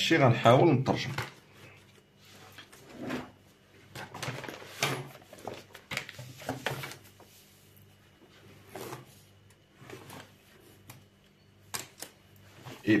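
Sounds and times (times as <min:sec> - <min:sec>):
paper rustling on a clipboard: 0:03.9 - 0:11.0.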